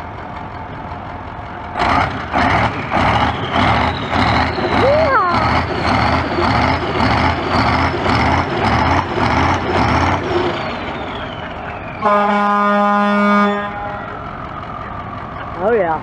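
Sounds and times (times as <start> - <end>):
diesel engine revving: 0.0 - 16.0
horn blast: 12.0 - 14.2.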